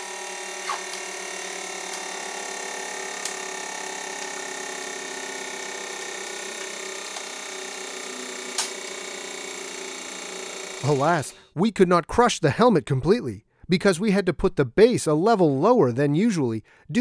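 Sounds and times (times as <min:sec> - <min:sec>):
hydraulic press humming: 0:00.0 - 0:11.5.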